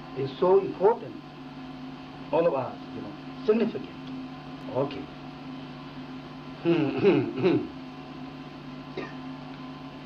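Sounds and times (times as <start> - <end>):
electrical hum: 0.0 - 10.0
person murmuring: 6.6 - 7.7.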